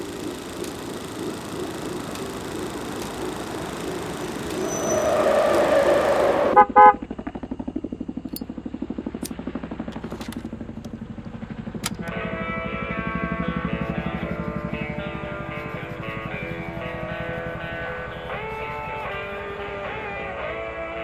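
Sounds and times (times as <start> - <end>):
rising noise swell: 0.0 - 6.6
loud pitched blasts: 0.0 - 7.0
low pulsing hum: 0.0 - 21.0
guitar-led film score: 11.7 - 21.0.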